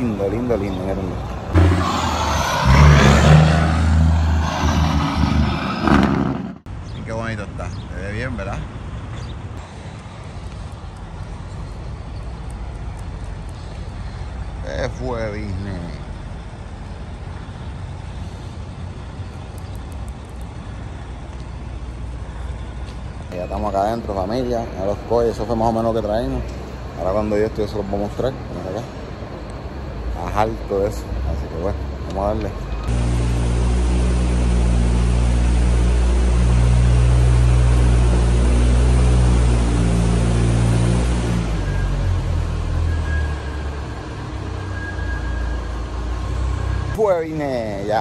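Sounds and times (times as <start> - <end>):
truck diesel engine droning: 0.0 - 6.7, 31.2 - 47.1.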